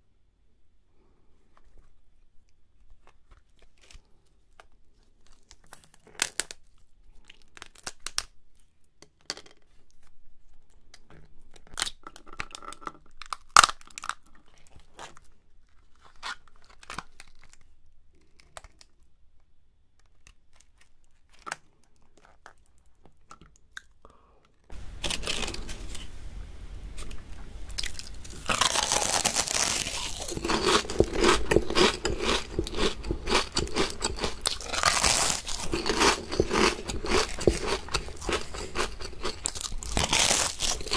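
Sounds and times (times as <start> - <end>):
crab shell cracking: 11.7 - 14.3, 27.7 - 40.9
wet tearing: 27.7 - 40.9.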